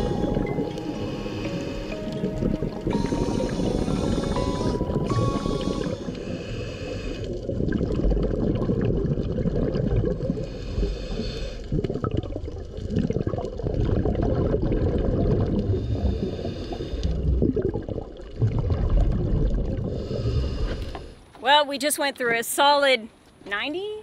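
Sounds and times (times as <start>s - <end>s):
hissing regulator inhale: 0.0s - 7.4s, 10.4s - 11.7s, 15.7s - 17.2s, 19.9s - 21.3s
underwater bubbling exhalations: 0.0s - 20.8s.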